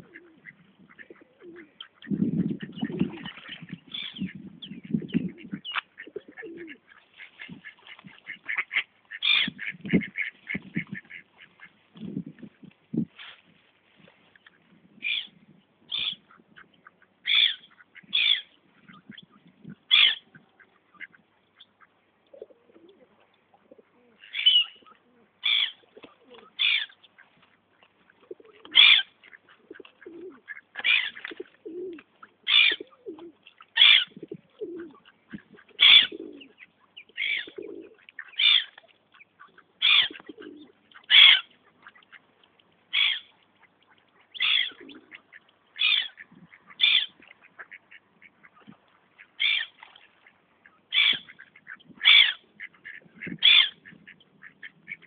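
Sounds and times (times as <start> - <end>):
ducks calling: 0.0 - 11.8, 15.9 - 23.0, 23.7 - 55.0
gulls calling: 28.3 - 42.3, 42.9 - 55.0.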